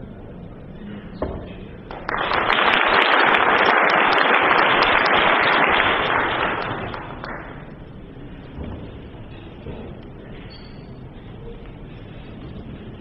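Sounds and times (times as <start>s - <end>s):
audience applauding: 1.9s - 7.7s.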